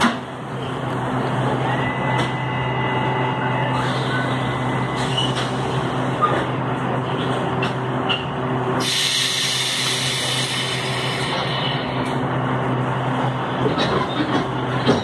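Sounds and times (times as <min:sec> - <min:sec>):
electric train growling hum: 0:00.0 - 0:15.0
hiss: 0:08.8 - 0:11.4.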